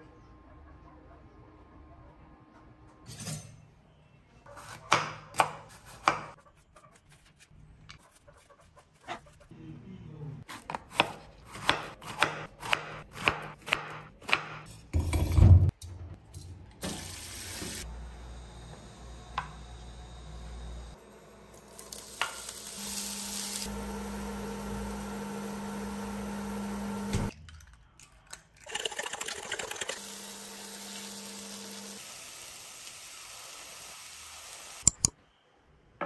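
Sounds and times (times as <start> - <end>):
knife chopping on wooden board: 4.9 - 6.3, 10.5 - 14.6.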